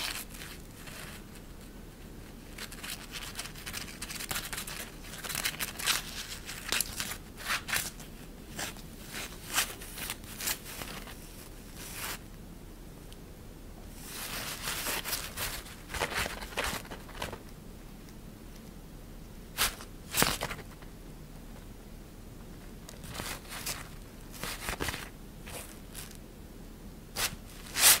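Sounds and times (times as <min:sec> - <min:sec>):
synthetic fabric rustling: 0:02.3 - 0:12.2, 0:13.9 - 0:17.4, 0:23.0 - 0:26.2, 0:27.1 - 0:28.0.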